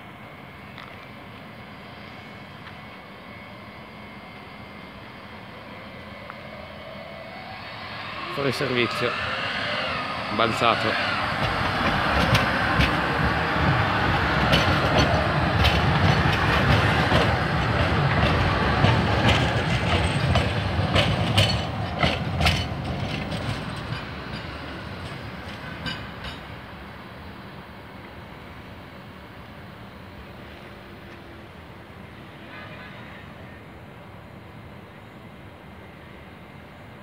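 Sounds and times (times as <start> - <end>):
tram wheels rumbling on rail: 0.0 - 37.0
wheels clacking over track: 10.0 - 26.7.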